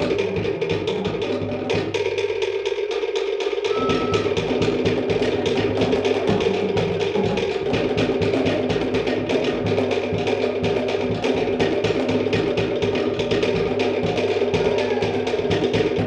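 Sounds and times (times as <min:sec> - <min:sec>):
wooden slit drums struck rapidly: 0:00.0 - 0:16.0
bass drum and skin drums thudding: 0:03.7 - 0:16.0.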